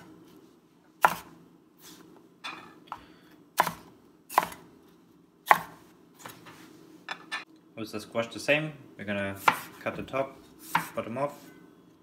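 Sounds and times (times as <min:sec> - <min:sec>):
cleaver chopping on cutting board: 0:01.0 - 0:01.3, 0:03.6 - 0:04.6, 0:05.5 - 0:05.8, 0:09.4 - 0:09.8, 0:10.7 - 0:11.0.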